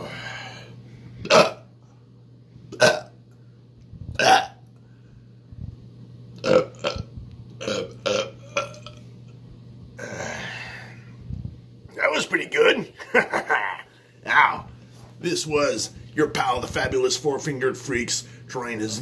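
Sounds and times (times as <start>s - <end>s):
man burping: 1.2s - 1.7s, 2.7s - 3.2s, 4.2s - 4.6s, 6.4s - 9.0s, 10.0s - 11.0s, 13.1s - 14.4s.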